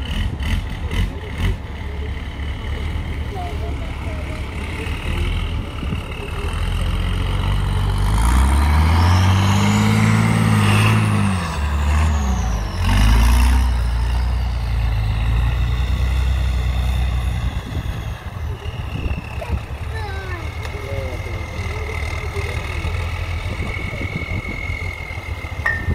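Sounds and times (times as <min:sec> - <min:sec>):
truck engine revving: 0:00.0 - 0:25.9
high whine: 0:25.6 - 0:25.9.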